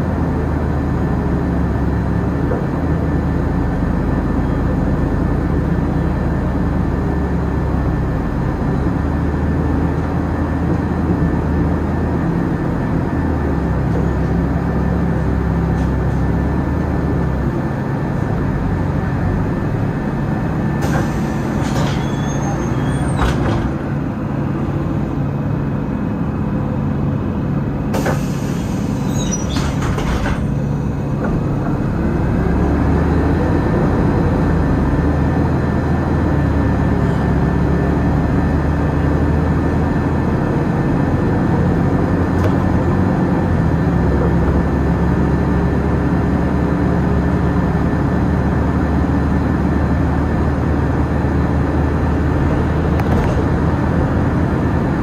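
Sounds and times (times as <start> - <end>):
bus engine idling: 0.0 - 55.0
road noise: 0.0 - 55.0
bus doors clunking: 20.5 - 25.3, 27.9 - 34.1, 41.4 - 43.4.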